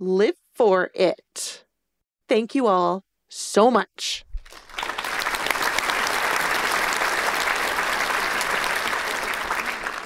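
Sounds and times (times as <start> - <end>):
crowd clapping: 4.4 - 10.0.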